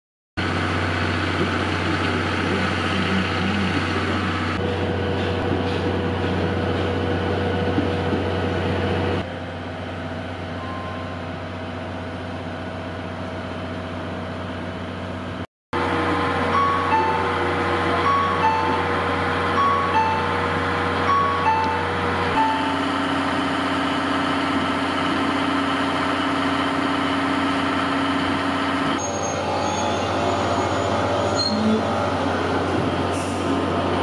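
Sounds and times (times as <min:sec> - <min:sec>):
electric train hum and rumble: 0:00.4 - 0:34.0
short electronic chime tones: 0:10.6 - 0:11.2.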